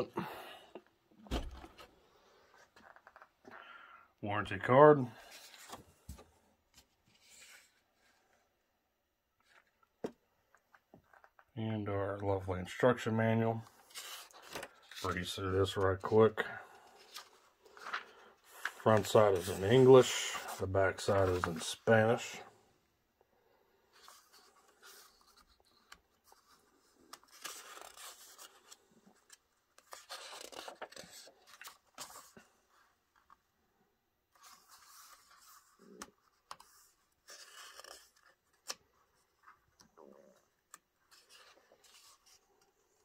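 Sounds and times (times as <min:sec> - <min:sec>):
paper pages rustling: 0:13.6 - 0:16.1, 0:16.8 - 0:22.4, 0:23.9 - 0:32.5, 0:34.3 - 0:43.0.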